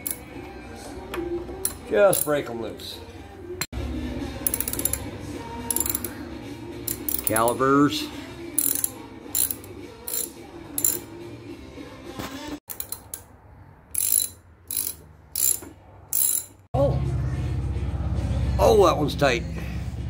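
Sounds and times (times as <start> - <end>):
ratchet wrench clicking: 0.0 - 0.2, 1.6 - 2.3, 4.4 - 6.2, 6.8 - 7.6, 8.6 - 11.1, 12.7 - 13.3, 13.9 - 16.6.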